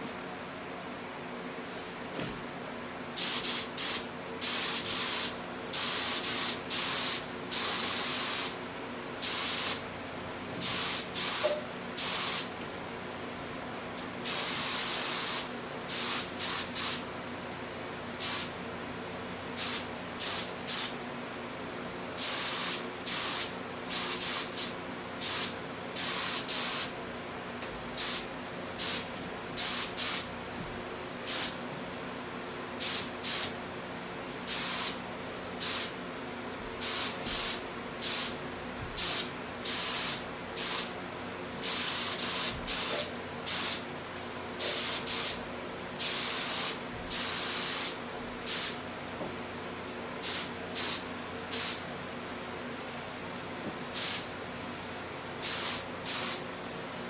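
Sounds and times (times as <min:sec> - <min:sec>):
spray gun hissing bursts: 0:03.1 - 0:08.6, 0:09.2 - 0:09.8, 0:10.6 - 0:12.5, 0:14.2 - 0:17.0, 0:18.2 - 0:18.5, 0:19.6 - 0:21.0, 0:22.2 - 0:26.9, 0:28.0 - 0:30.3, 0:34.4 - 0:35.0, 0:35.6 - 0:36.0, 0:36.8 - 0:38.4, 0:39.0 - 0:40.9, 0:41.6 - 0:43.8, 0:44.5 - 0:45.4, 0:46.0 - 0:48.8, 0:50.2 - 0:51.8, 0:53.9 - 0:57.0.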